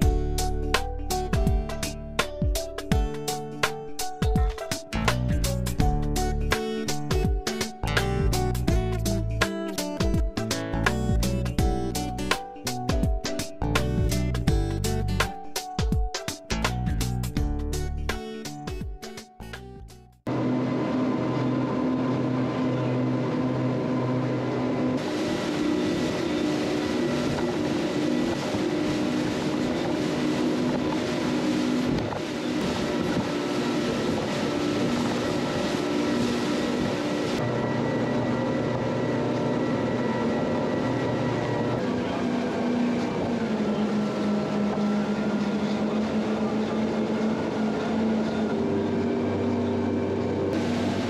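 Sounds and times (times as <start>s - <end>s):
boat wake rushing: 20.3s - 51.0s
outboard engines droning: 20.3s - 51.0s
wind and water rushing: 25.0s - 37.4s.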